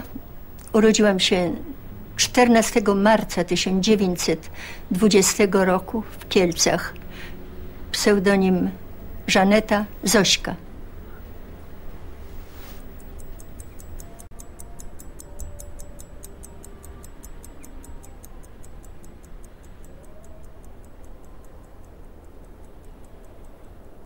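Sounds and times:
clock ticking: 0.0s - 12.1s, 12.9s - 24.0s
faint background music: 0.0s - 24.0s
low hum: 0.0s - 24.0s.

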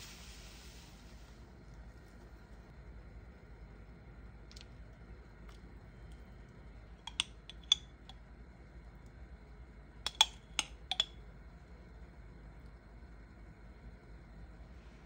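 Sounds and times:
metal spoon clinking: 7.1s - 7.9s, 10.1s - 11.1s.

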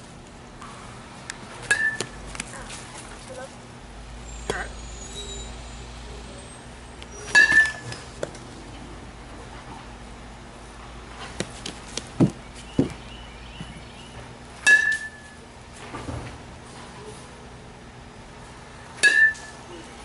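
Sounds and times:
metal bat hitting ball ping: 1.7s - 2.2s, 7.2s - 8.0s, 14.6s - 15.3s, 19.0s - 19.6s
dull thuds: 11.3s - 13.9s.

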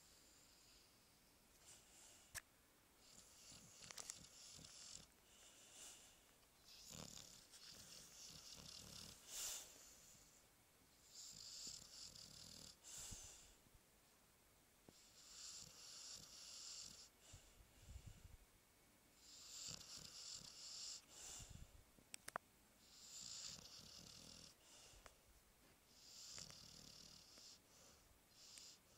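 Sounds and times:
dog snoring: 0.0s - 0.9s, 3.0s - 10.2s, 11.0s - 13.6s, 14.9s - 17.6s, 19.2s - 21.6s, 22.8s - 25.1s, 25.9s - 28.9s.

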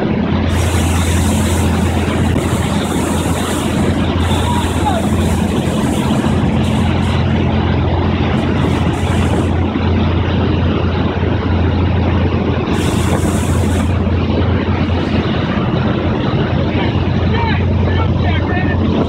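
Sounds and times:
low motor hum: 0.0s - 19.0s
rushing water: 0.0s - 19.0s
wind noise: 0.0s - 19.0s
bursts of high hiss: 0.4s - 9.6s, 12.7s - 14.2s.

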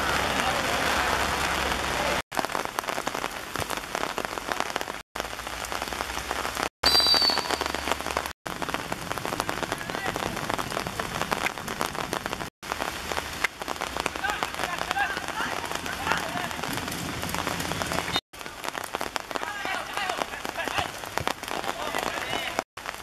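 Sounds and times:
heavy rain on hard court: 0.0s - 23.0s
short high whistle blast: 6.8s - 7.7s.

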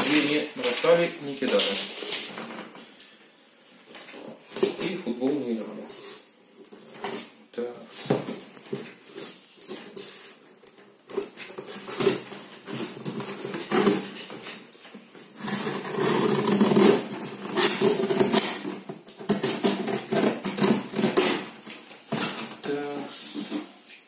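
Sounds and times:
tape and cardboard rustling: 0.0s - 24.0s
scissors cutting packing tape: 11.1s - 14.4s, 15.4s - 22.3s.

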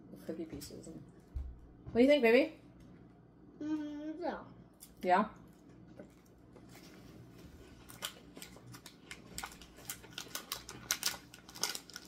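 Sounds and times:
snack wrapper crackling: 7.7s - 12.0s.

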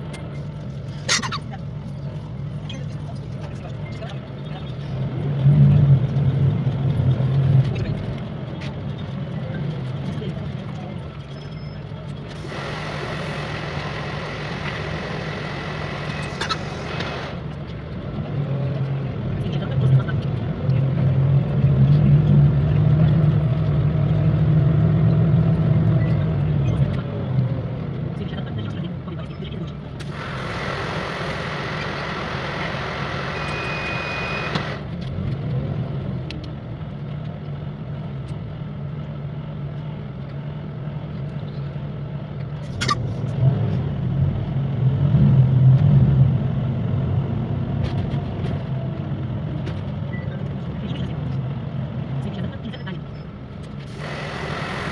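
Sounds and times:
bus engine hum: 0.0s - 54.9s
road rush: 0.0s - 54.9s
brief high tone: 33.3s - 34.6s
hiss: 53.9s - 54.9s.

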